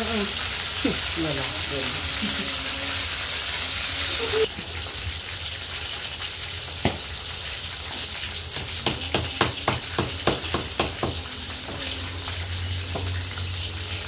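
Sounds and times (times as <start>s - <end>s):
oil sizzling in a wok: 0.0s - 14.0s.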